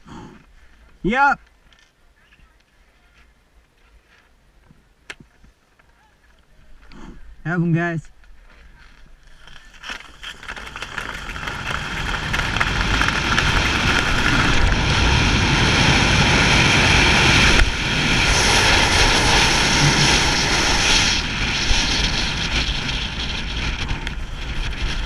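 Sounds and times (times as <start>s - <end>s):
skis running on snow: 9.3s - 25.0s
wind rushing over microphone: 10.5s - 25.0s.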